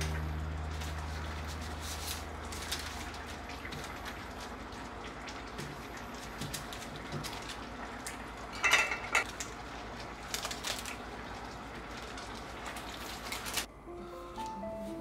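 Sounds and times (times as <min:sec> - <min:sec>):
metal utensils clinking on cookware: 0:08.6 - 0:09.3.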